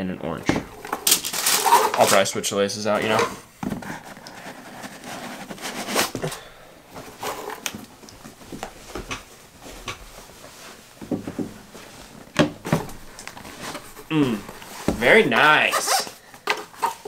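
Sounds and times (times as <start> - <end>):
boots rustling: 5.3 - 17.0.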